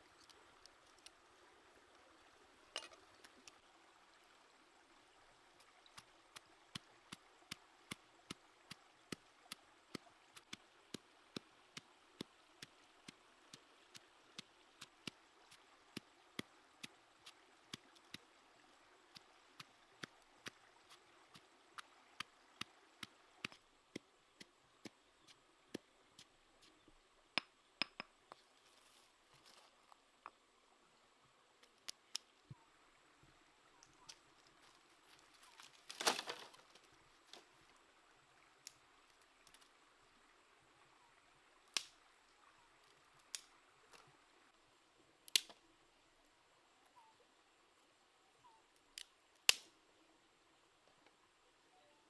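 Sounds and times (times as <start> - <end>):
faint steady hiss: 0.0 - 52.0
dry wood snapping in fire: 35.6 - 36.6, 41.7 - 42.0, 45.3 - 45.6, 49.0 - 49.7.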